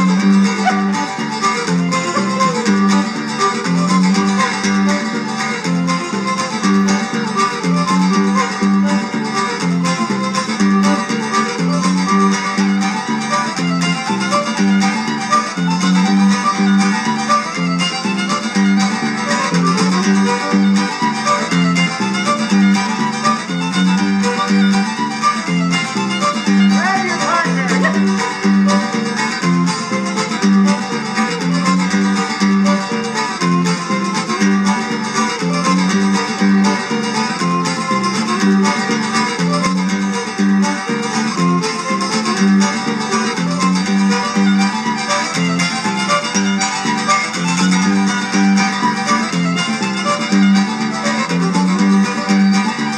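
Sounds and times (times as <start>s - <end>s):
fiddle playing a reel: 0.0s - 52.9s
rhythmic guitar accompaniment: 0.0s - 52.9s.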